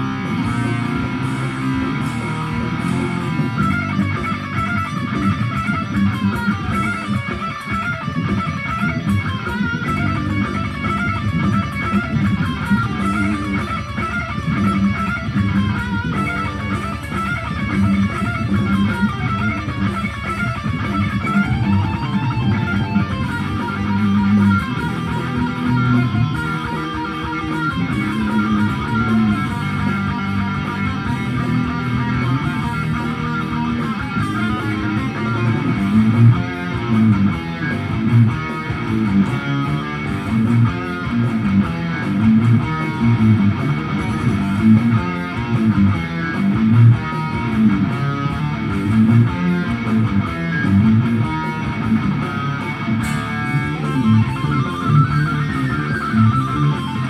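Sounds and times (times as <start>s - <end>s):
electric guitar metal riffing: 0.0s - 57.0s.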